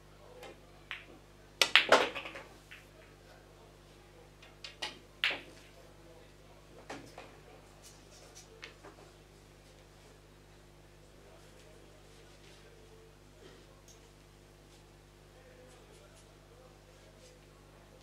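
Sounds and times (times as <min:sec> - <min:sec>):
pool balls clacking: 0:00.9 - 0:02.9, 0:04.6 - 0:05.7.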